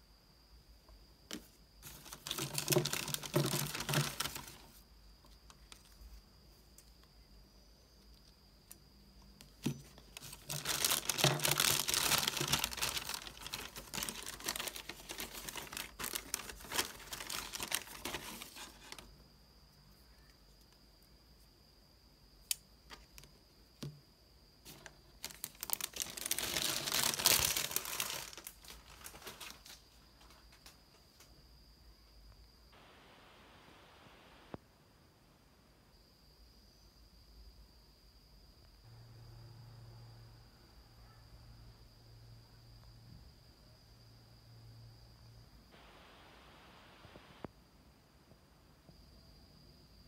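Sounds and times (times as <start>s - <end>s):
plastic bags crinkling: 1.8s - 4.8s, 9.6s - 19.1s, 24.7s - 30.3s.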